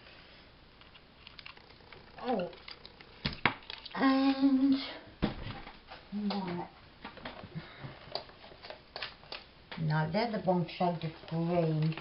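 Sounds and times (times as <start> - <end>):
person speaking: 2.1 - 2.6, 9.8 - 12.0.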